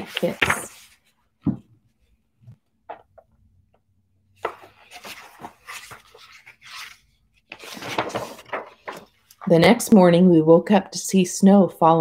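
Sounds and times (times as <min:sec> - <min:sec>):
pages rustling: 0:00.0 - 0:01.2, 0:04.4 - 0:09.7.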